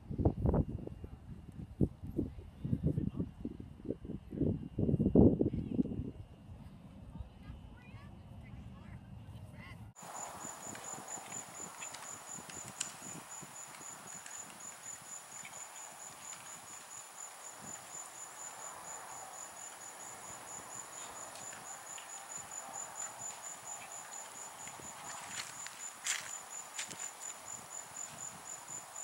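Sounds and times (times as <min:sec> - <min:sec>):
horse hooves cantering on sand: 0:10.0 - 0:29.0
insects chirping: 0:10.0 - 0:29.0.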